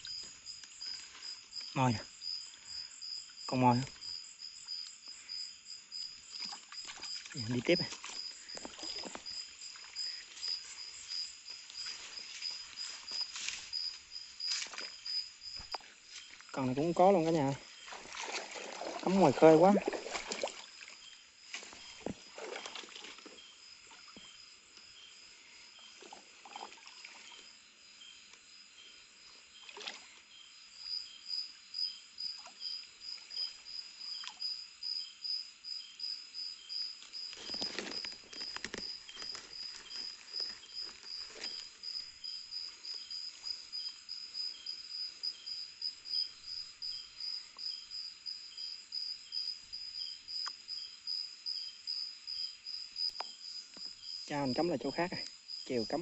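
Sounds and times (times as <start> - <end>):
crickets chirping: 0.0 - 56.0
high chirping insect: 0.0 - 56.0
bumps and rustles: 37.3 - 41.8.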